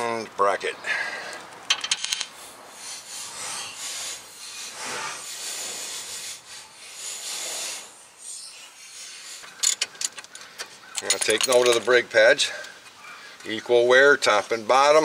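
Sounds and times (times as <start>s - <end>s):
metal brake parts scraping: 9.5s - 11.9s
metal parts clicking: 9.5s - 12.0s.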